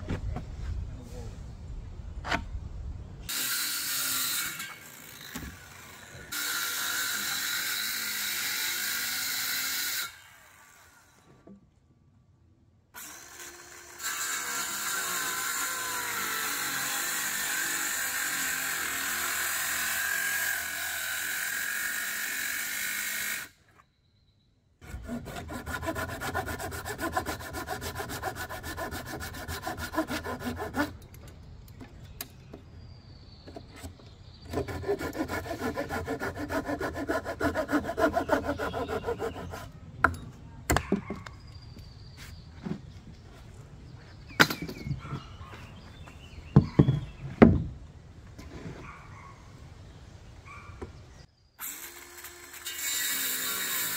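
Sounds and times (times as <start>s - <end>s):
handsaw cutting wood: 3.3s - 10.3s, 13.0s - 23.5s, 24.8s - 31.0s, 34.5s - 39.7s, 51.6s - 53.9s
circular saw cutting wood: 3.3s - 11.3s, 13.0s - 23.6s, 24.8s - 31.0s, 34.5s - 39.7s, 51.6s - 53.9s.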